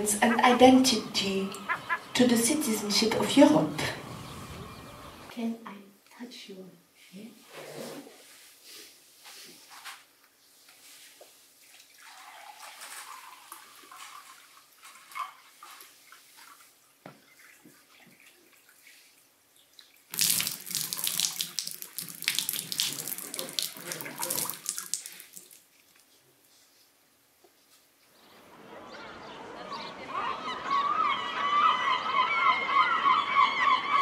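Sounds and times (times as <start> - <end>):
water pouring into a glass: 12.0 - 14.4, 20.1 - 25.6.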